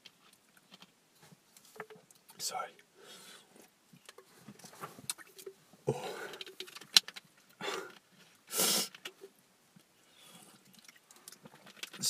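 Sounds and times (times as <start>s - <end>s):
shaky breaths and sniffles: 5.8s - 6.8s, 7.6s - 9.1s.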